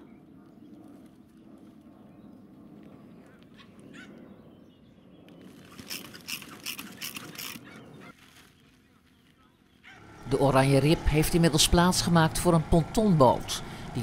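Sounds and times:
sharp plastic crinkles: 0:05.4 - 0:09.5.

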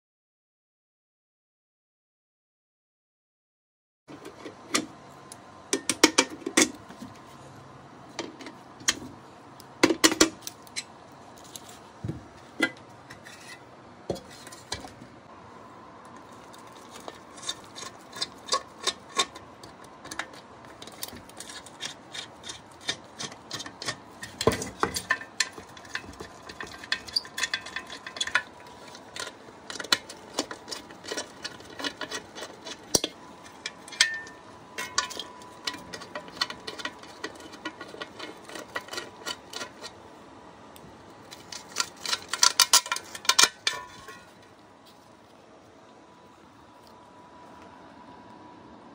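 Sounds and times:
hand tools on metal lid: 0:09.8 - 0:15.1, 0:16.2 - 0:40.0, 0:41.2 - 0:44.5.

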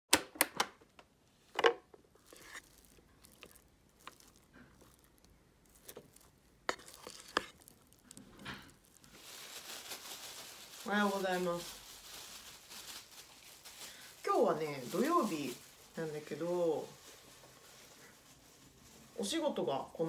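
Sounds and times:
plastic wrap rustling: 0:01.2 - 0:20.0
rice paddle scraping pot: 0:02.2 - 0:05.1, 0:05.7 - 0:08.6.

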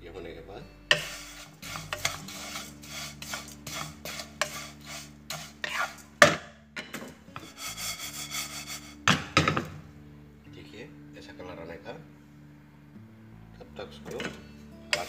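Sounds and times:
spatula scraping in pan: 0:00.9 - 0:06.2, 0:07.4 - 0:09.1.

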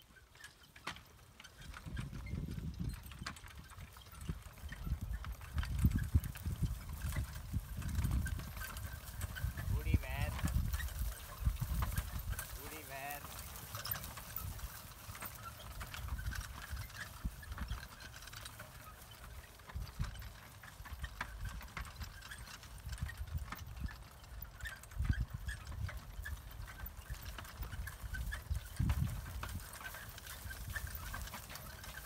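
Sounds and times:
carriage rolling rumble: 0:00.0 - 0:32.0
ticks and rattles: 0:00.0 - 0:32.0
hoofbeats on grass: 0:00.1 - 0:32.0.

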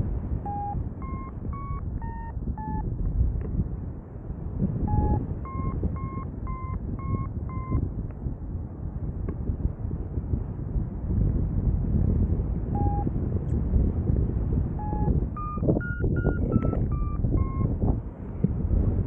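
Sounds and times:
wind on microphone: 0:00.0 - 0:19.0
variometer short beeps: 0:00.4 - 0:02.8, 0:04.9 - 0:07.8, 0:12.8 - 0:13.1, 0:14.8 - 0:17.8.

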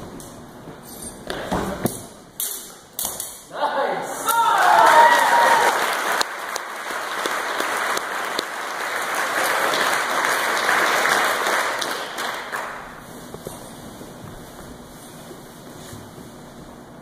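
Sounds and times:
cheering whoop: 0:04.2 - 0:06.0
audience applauding: 0:04.4 - 0:13.0.

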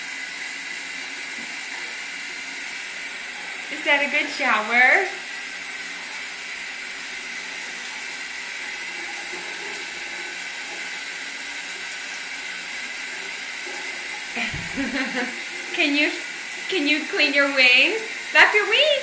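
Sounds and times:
shower water spray hissing: 0:00.0 - 0:19.0.

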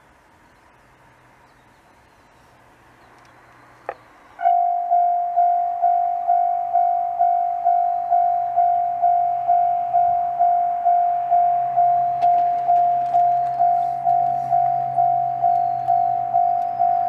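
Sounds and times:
faint outdoor hum: 0:00.0 - 0:17.0
level crossing warning bell: 0:04.4 - 0:17.0.

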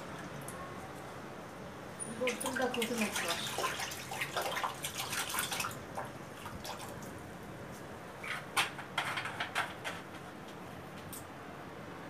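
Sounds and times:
water sloshing in plastic bucket: 0:02.2 - 0:07.0.

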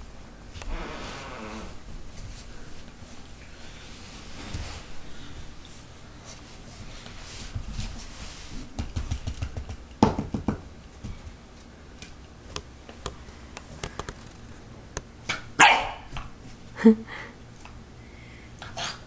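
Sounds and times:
puppy barking: 0:15.6 - 0:16.1.

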